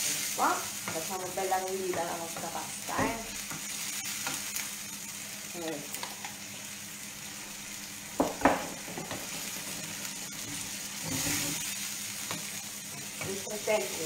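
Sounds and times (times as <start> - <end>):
sauce sizzling in frying pan: 0.0 - 14.0
knocks against pan: 8.2 - 9.2.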